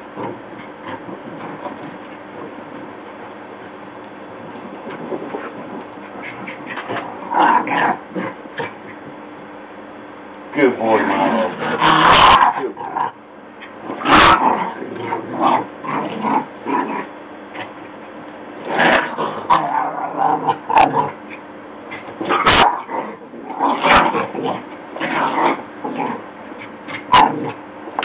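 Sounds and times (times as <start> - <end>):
dogs growling and barking: 4.8 - 8.9, 10.9 - 13.2, 13.8 - 17.8, 18.6 - 28.0.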